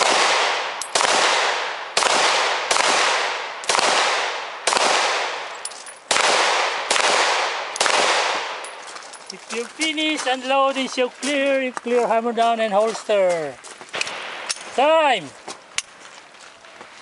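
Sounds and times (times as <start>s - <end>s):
pistol shots echoing: 0.0s - 8.8s, 13.9s - 14.8s.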